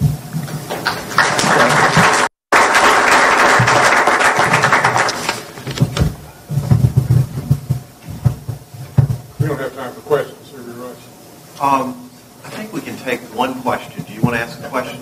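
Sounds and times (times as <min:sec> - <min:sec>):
audience applauding: 0:00.7 - 0:05.8.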